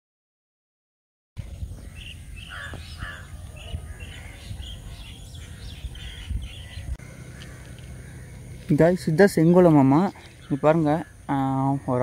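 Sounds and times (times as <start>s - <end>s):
birds chirping: 1.4s - 12.0s
low irregular rumble: 3.0s - 10.6s.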